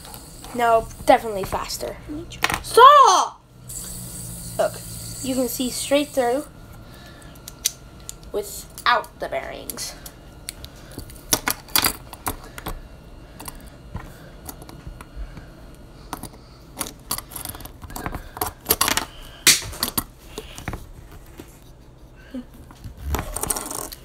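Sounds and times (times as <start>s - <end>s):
fidget spinner clicking: 0.0s - 2.0s, 3.7s - 6.5s.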